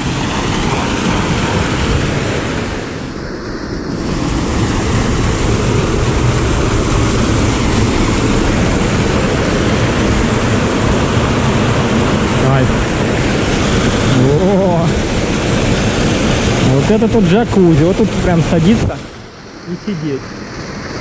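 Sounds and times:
waterfall roaring: 0:00.0 - 0:21.0.

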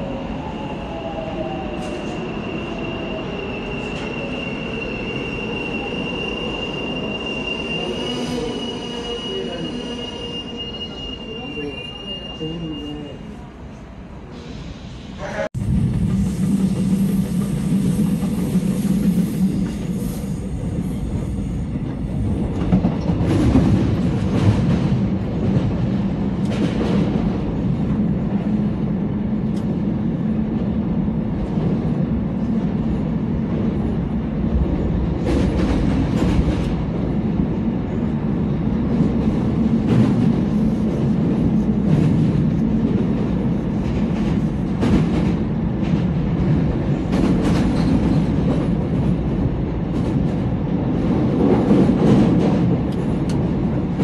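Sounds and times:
train low rumble: 0:11.2 - 0:54.0.

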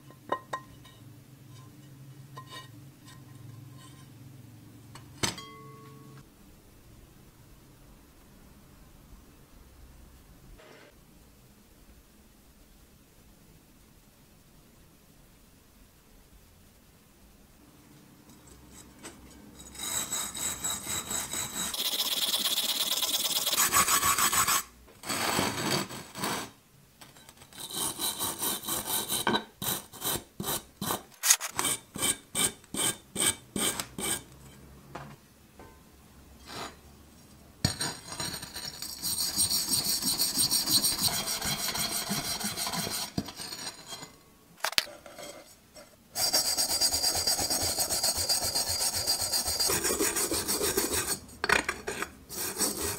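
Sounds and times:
wire brush scrubbing iron pan: 0:38.4 - 0:44.0, 0:46.2 - 0:51.2.

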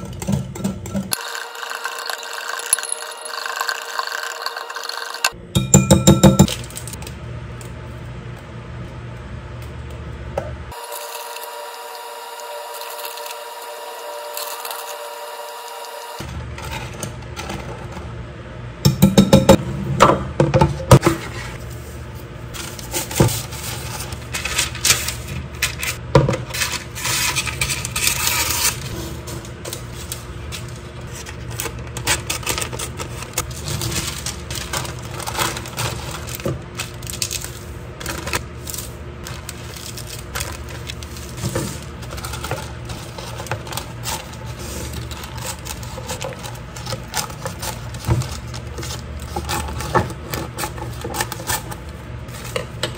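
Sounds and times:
paper rustling and crinkling: 0:21.2 - 0:52.8.

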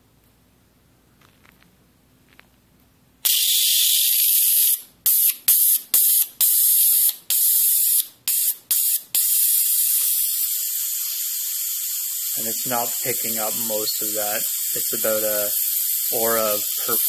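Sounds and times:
tesla coil hissing: 0:03.2 - 0:17.0.

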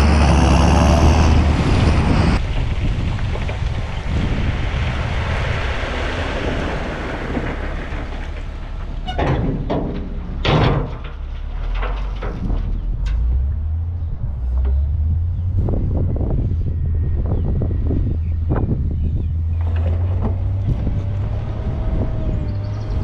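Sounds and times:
tractor engine hum: 0:00.0 - 0:23.0
tractor running: 0:00.0 - 0:23.0
rubble sliding out of trailer: 0:02.4 - 0:16.0, 0:19.4 - 0:23.0
clattering knocks: 0:07.2 - 0:13.9.

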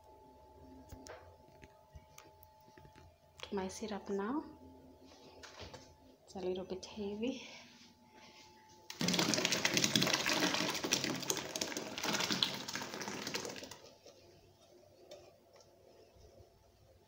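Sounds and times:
liquid splashing and gurgling: 0:08.9 - 0:13.8
fruit pulp pouring into syrup: 0:08.9 - 0:13.9.

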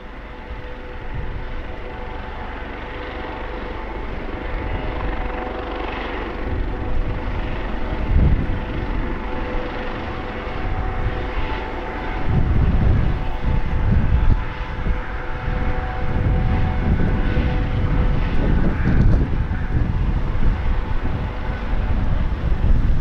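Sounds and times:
helicopter rotor beat: 0:00.0 - 0:23.0
helicopter turbine whine: 0:00.0 - 0:23.0.

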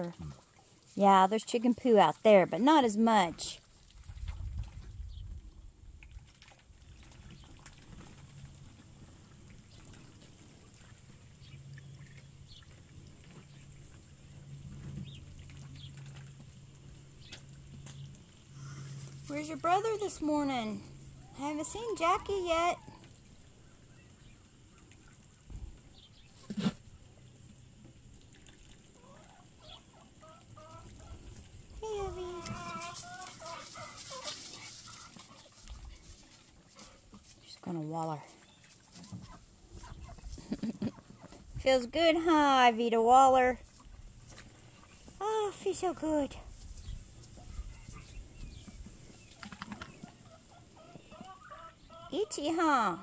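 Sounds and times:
low steady rumble: 0:03.9 - 0:38.6
chickens clucking: 0:28.9 - 0:31.5, 0:32.1 - 0:37.0, 0:38.6 - 0:41.5, 0:47.0 - 0:52.5.

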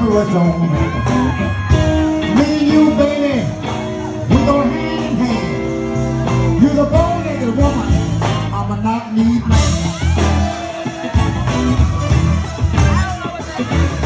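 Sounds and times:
blues band playing: 0:00.0 - 0:14.0
man singing: 0:02.1 - 0:10.6.

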